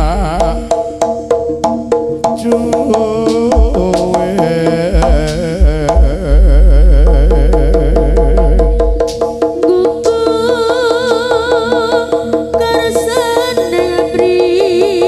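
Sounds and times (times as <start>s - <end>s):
gamelan music over sound system: 0.0s - 15.0s
deep bass note: 3.5s - 9.2s.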